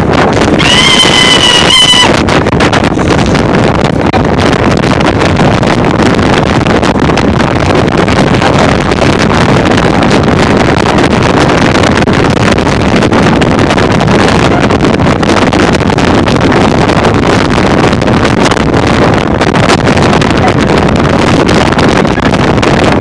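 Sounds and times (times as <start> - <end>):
boat through choppy water: 0.0 - 23.0
motorboat engine: 0.0 - 23.0
wind buffeting microphone: 0.0 - 23.0
high-pitched squeal: 0.5 - 2.2.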